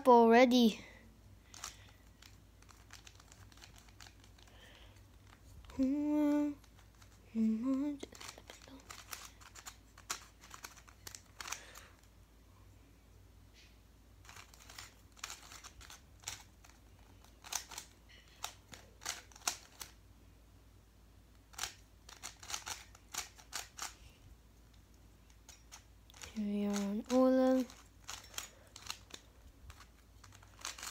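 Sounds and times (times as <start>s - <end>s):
puzzle layers clicking: 1.5s - 12.0s, 14.2s - 20.0s, 21.5s - 24.1s, 25.3s - 30.9s.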